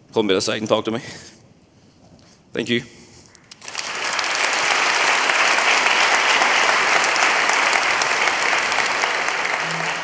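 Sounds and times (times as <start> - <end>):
audience applauding: 3.5 - 10.0.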